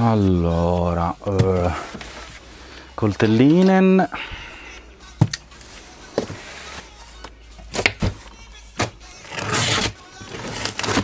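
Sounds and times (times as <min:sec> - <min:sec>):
knife cutting packing tape: 0:09.2 - 0:11.0.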